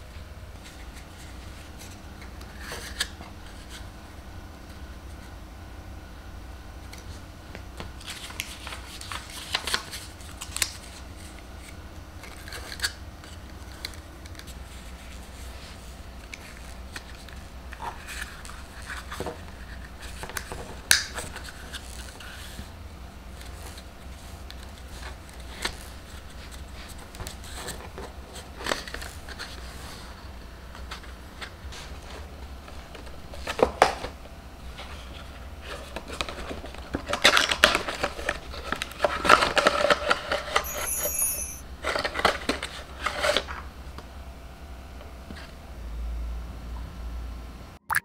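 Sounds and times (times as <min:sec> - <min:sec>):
steady low hum: 0:00.0 - 0:47.8
plastic and paper clicks and rustles: 0:07.8 - 0:22.7, 0:23.4 - 0:29.7, 0:30.7 - 0:40.6, 0:41.8 - 0:43.6.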